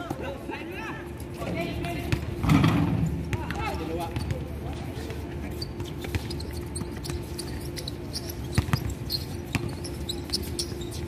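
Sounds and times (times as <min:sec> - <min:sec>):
basketball bouncing on a court: 0:01.8 - 0:04.5, 0:08.2 - 0:10.8.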